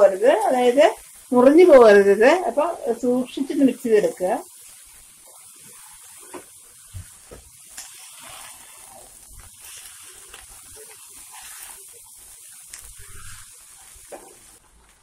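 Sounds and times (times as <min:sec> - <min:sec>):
fried rice sizzling in a wok: 0:00.0 - 0:15.0
spatula scraping a pan: 0:05.2 - 0:14.6.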